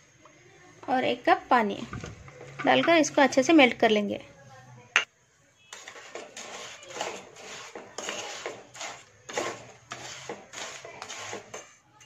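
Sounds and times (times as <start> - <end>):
spatula scraping frying pan: 5.7 - 11.8.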